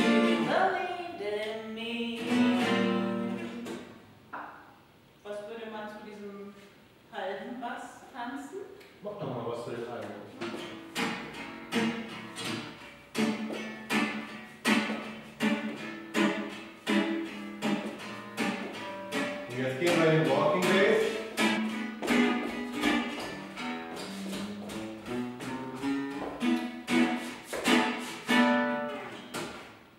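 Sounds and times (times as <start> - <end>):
acoustic guitar strumming swing chords: 0.0 - 4.1, 10.4 - 29.9.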